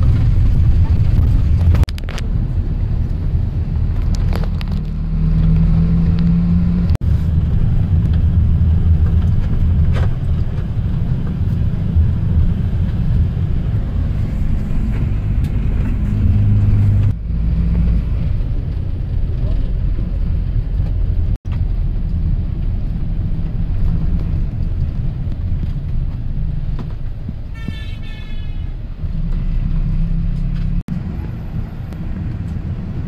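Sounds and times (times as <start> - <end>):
vehicle interior engine rumble: 0.0 - 33.0.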